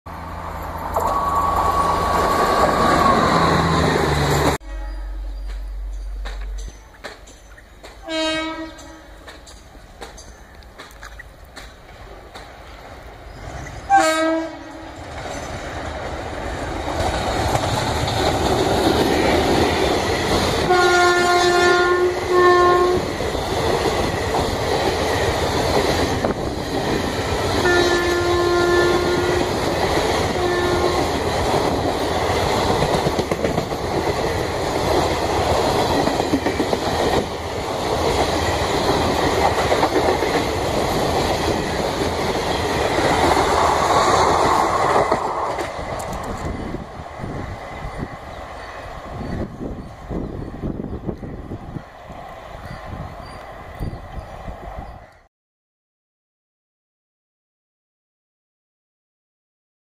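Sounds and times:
train horn blasts: 0:04.6 - 0:05.4, 0:08.0 - 0:09.5, 0:13.9 - 0:15.1, 0:20.7 - 0:23.1, 0:27.6 - 0:29.6, 0:30.2 - 0:31.1
train wheels clacking over rails: 0:05.4 - 0:13.8, 0:14.8 - 0:21.4, 0:22.9 - 0:49.6.

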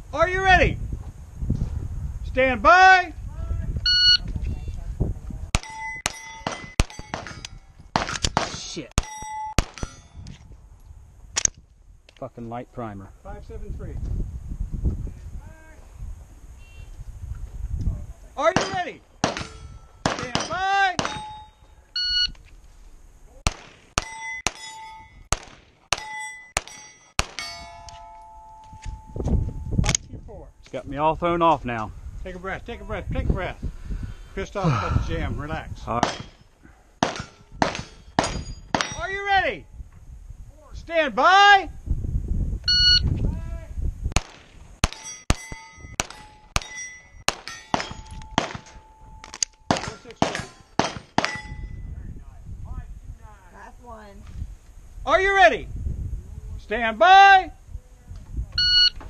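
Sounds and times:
steel plate ringing: 0:05.6 - 0:07.8, 0:09.0 - 0:10.2, 0:18.6 - 0:21.7, 0:24.0 - 0:25.3, 0:25.9 - 0:29.8, 0:44.8 - 0:51.8
pistol shots: 0:05.6 - 0:10.0, 0:18.5 - 0:21.4, 0:23.4 - 0:24.7, 0:25.3 - 0:27.7, 0:36.0 - 0:36.4, 0:37.0 - 0:39.0, 0:44.2 - 0:48.8, 0:49.6 - 0:51.4.

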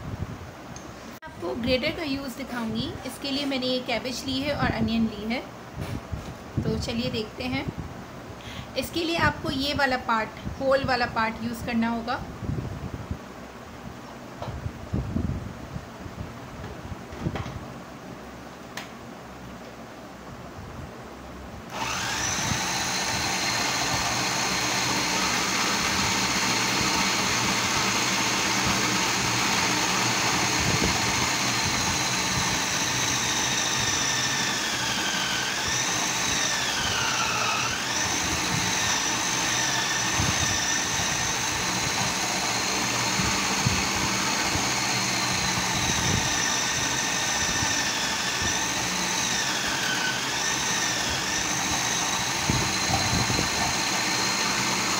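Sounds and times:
food processor motor whining: 0:21.7 - 0:54.9.

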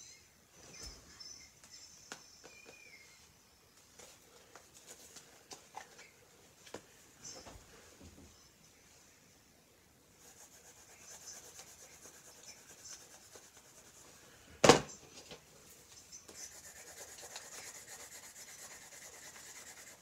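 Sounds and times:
drawing tool scratching paper: 0:10.2 - 0:14.0, 0:16.3 - 0:20.0.

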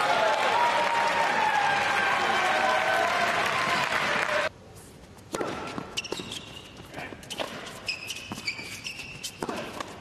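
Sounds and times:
crowd applauding and cheering: 0:00.0 - 0:04.5
shoes squeaking on court: 0:05.1 - 0:10.0
tennis ball bouncing on court: 0:05.3 - 0:06.4, 0:07.3 - 0:10.0.

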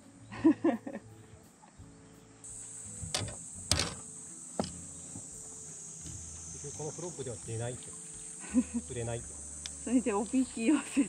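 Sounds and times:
insects buzzing: 0:00.0 - 0:11.0
sharp knocks: 0:03.0 - 0:04.0, 0:04.6 - 0:05.3.

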